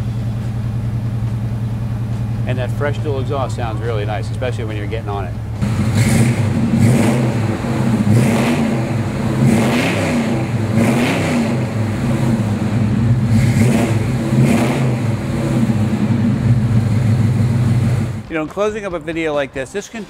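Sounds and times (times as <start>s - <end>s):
v-eight engine revving: 2.4s - 18.3s.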